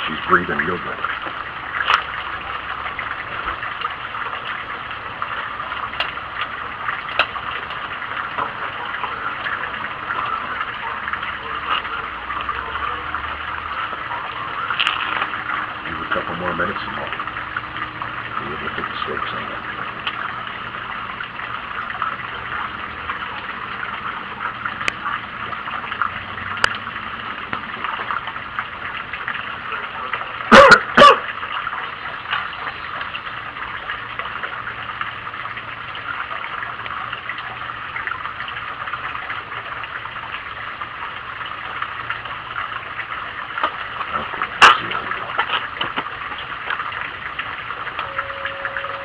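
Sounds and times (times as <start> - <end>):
sharp pops: 44.6 - 46.0.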